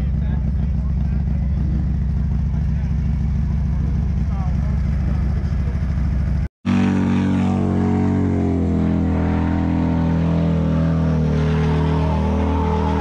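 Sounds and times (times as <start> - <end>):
motorcycle engine at high revs: 0.0 - 13.0.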